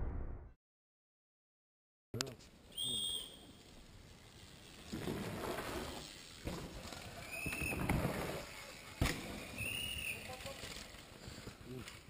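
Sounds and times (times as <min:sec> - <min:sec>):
bike tyres crunching on dirt: 0:02.4 - 0:12.0
bike rattling: 0:03.3 - 0:12.0.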